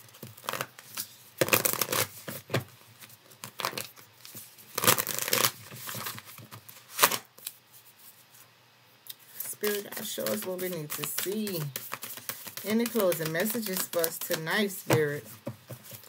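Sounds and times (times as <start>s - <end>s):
cards being shuffled: 9.3s - 16.0s.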